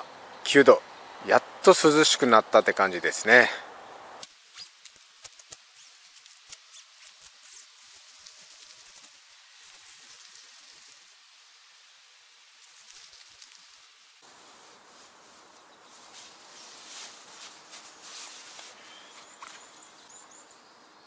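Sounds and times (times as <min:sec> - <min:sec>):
tent fabric rustling: 0:04.2 - 0:19.0.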